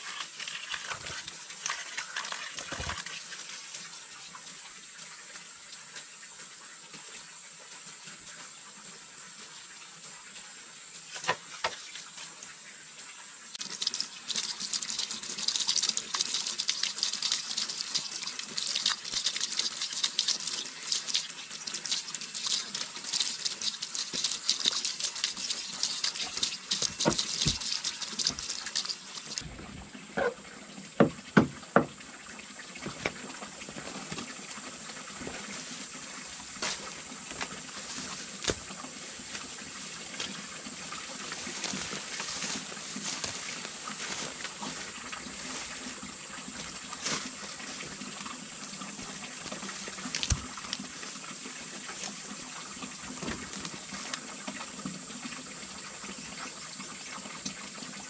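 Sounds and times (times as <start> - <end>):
water trickling and splashing: 0.0 - 58.0.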